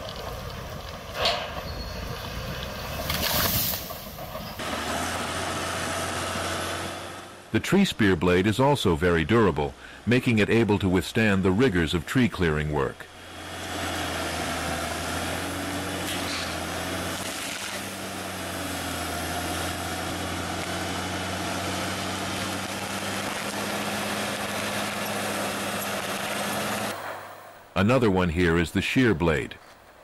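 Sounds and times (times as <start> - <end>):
bulldozer diesel engine drone: 0.0 - 29.4.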